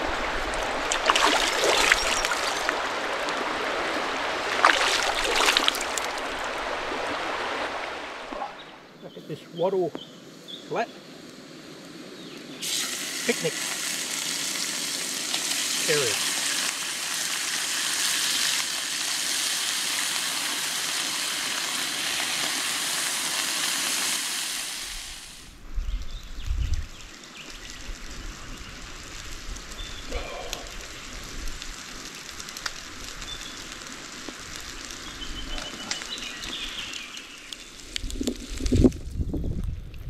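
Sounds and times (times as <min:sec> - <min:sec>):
outdoor background: 0:00.0 - 0:40.0
food sizzling in a frying pan: 0:12.6 - 0:25.5
wind rumble on microphone: 0:25.6 - 0:31.8, 0:37.8 - 0:40.0.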